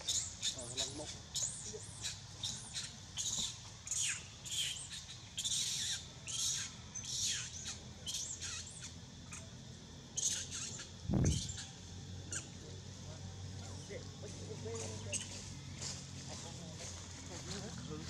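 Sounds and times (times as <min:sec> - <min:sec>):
monkey shrill screams: 0:01.4 - 0:08.9, 0:10.2 - 0:12.5.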